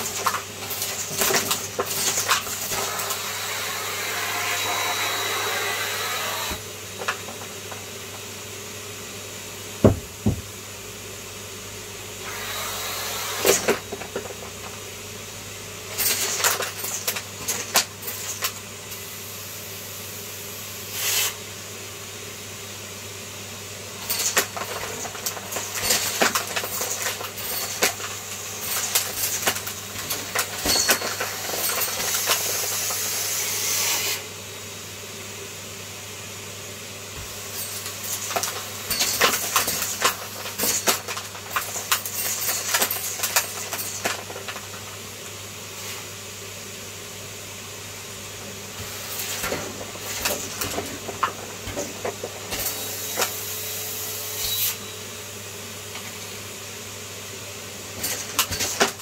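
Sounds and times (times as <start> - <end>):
debris clicking in vacuum: 0.0 - 3.2, 24.0 - 33.1, 37.6 - 45.4, 48.8 - 53.4
vacuum cleaner suction hiss: 0.0 - 10.7, 11.3 - 15.6, 18.9 - 23.4, 27.2 - 39.1, 44.7 - 58.6.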